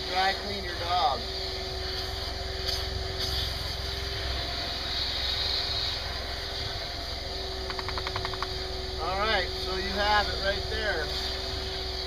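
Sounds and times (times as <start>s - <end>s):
shop vacuum motor running: 0.0s - 12.0s
quick clicks: 7.7s - 8.5s.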